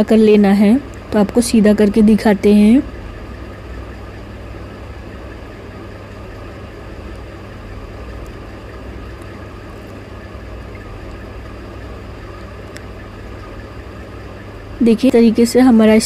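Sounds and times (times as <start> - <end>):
low motor hum: 0.0 - 16.0.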